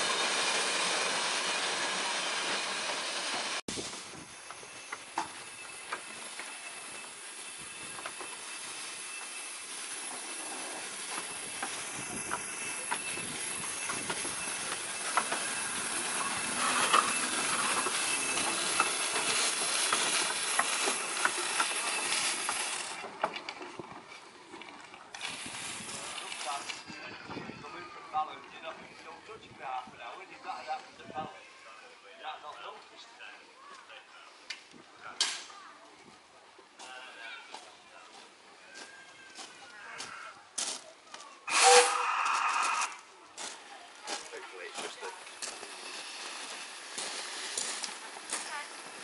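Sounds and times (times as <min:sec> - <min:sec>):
steam hiss: 0:00.0 - 0:23.1, 0:25.2 - 0:27.0, 0:41.5 - 0:43.0, 0:44.2 - 0:49.0
wheels clicking and clanking on track: 0:00.0 - 0:27.5, 0:43.3 - 0:49.0.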